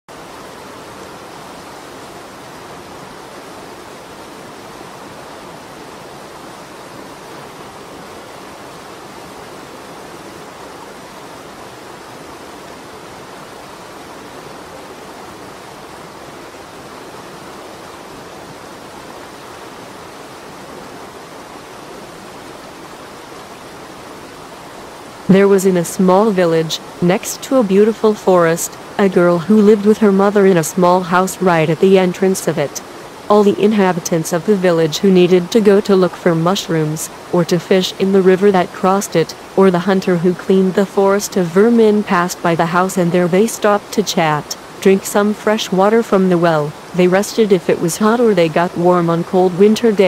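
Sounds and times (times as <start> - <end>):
stream rushing: 0.1 - 50.0.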